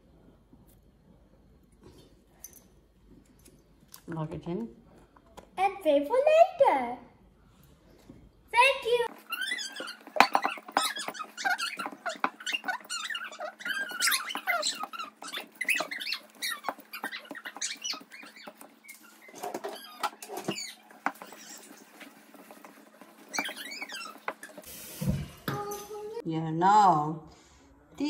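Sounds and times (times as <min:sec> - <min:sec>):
skin squeaking on glass: 0:09.1 - 0:24.7.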